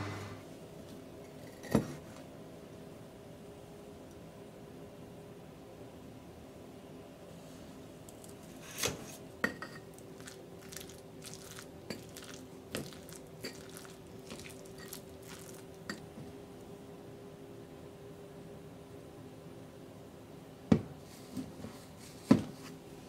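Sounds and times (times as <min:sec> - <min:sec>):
rice paddle stirring rice: 0:10.2 - 0:15.7.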